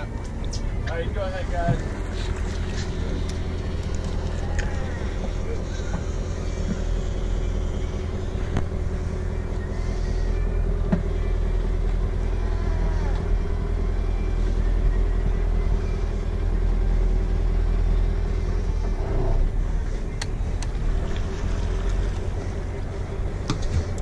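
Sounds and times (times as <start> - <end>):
boat engine running: 0.0 - 24.0.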